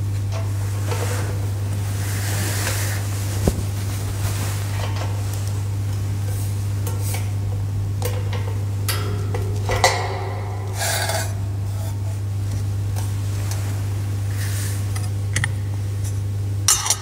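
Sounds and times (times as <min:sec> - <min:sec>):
steady low hum: 0:00.0 - 0:17.0
metal clinks and scrapes: 0:08.9 - 0:12.3.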